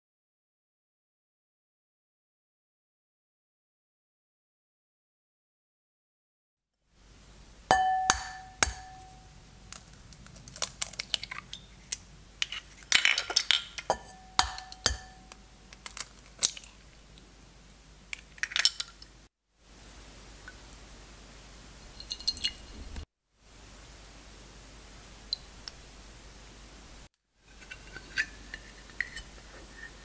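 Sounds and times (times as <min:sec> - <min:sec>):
egg tapping on ceramic bowl: 0:07.7 - 0:09.2, 0:14.0 - 0:15.4
eggshell crackling: 0:08.1 - 0:17.3, 0:21.8 - 0:23.0.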